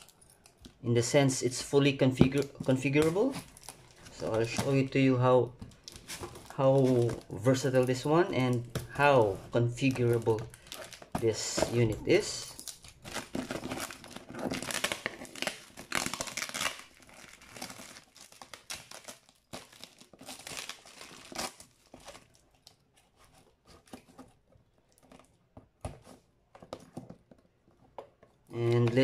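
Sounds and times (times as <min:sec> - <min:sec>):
plastic wrap crinkling and tearing: 0:02.2 - 0:05.0, 0:05.6 - 0:25.4.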